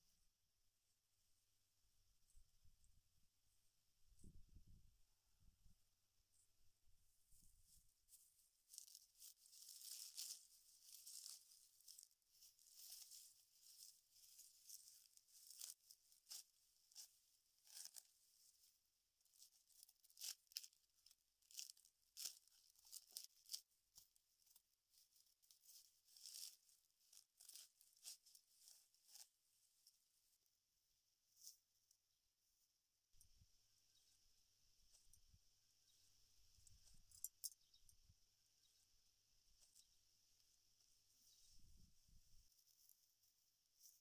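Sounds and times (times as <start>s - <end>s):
dry palm fibre tearing: 8.7s - 18.6s, 19.3s - 29.3s.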